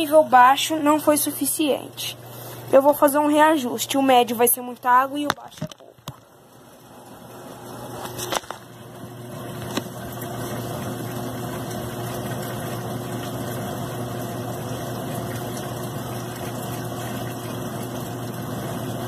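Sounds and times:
water pouring into washing machine: 6.0s - 19.0s.

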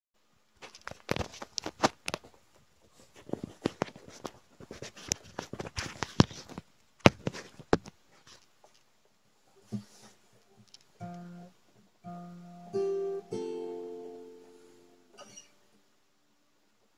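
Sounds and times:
device handling clicks and rubbing: 0.6s - 2.3s.

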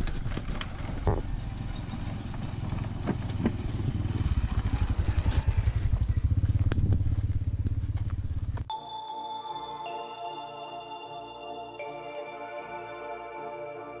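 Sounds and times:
scooter engine running: 0.0s - 8.7s.

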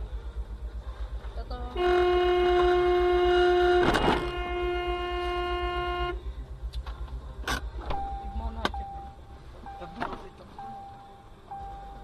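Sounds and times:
car horn blast: 1.7s - 6.2s.

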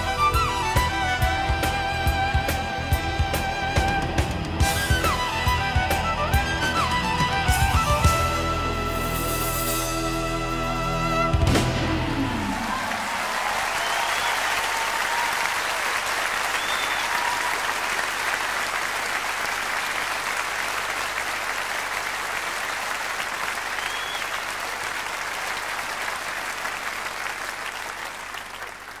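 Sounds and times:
audience applauding: 0.0s - 8.6s, 11.3s - 29.0s
whistles from crowd: 12.2s - 15.7s, 16.3s - 18.4s, 23.6s - 24.8s.

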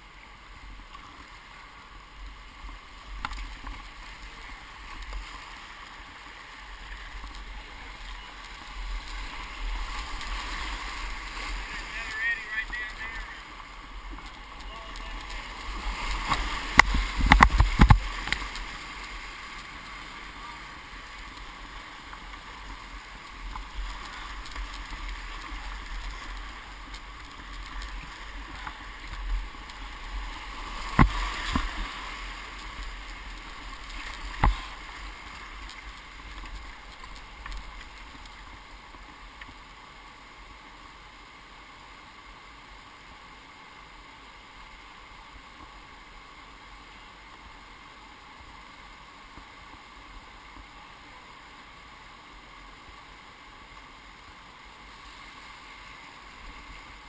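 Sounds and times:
whitewater rushing: 0.0s - 57.0s
kayak splashing and knocking: 6.8s - 19.0s, 23.5s - 39.2s.

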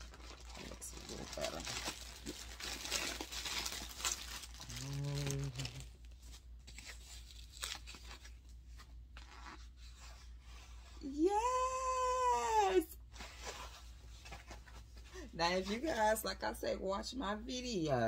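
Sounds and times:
plastic bag and foam wrap crinkling: 0.0s - 9.8s
low hummed voice: 4.6s - 5.9s.

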